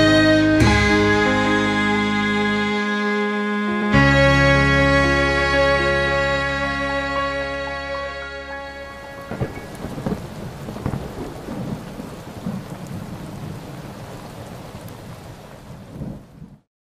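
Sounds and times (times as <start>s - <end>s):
held music chord: 0.0s - 10.2s
heavy rain: 4.0s - 16.7s
rolling thunder: 9.1s - 16.6s.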